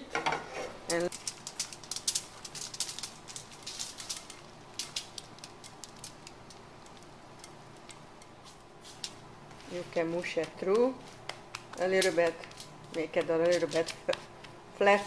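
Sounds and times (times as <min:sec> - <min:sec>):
scraping from frying pan: 0:00.2 - 0:00.8
crackling hot brittle: 0:00.8 - 0:14.8.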